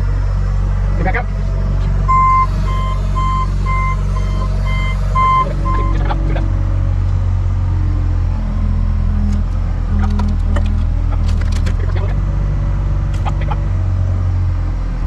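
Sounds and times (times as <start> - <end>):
diesel engine running: 0.0 - 15.0
reversing alarm beeping: 2.0 - 6.2.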